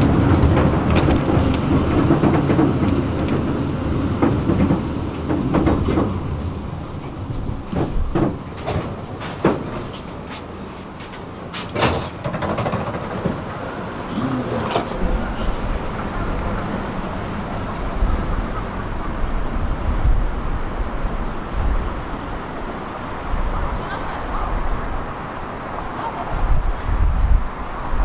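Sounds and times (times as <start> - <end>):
tram doors knocking and clunking: 0.0 - 28.0
tram rumbling: 0.0 - 28.0.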